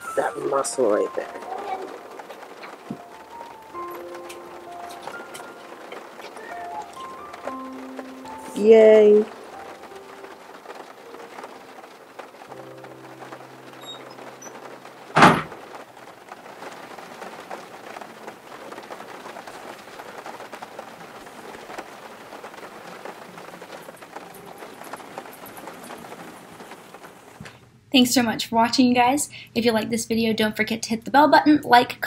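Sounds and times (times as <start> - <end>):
rain pattering: 0.0 - 32.0
sharp bang: 15.2 - 15.6.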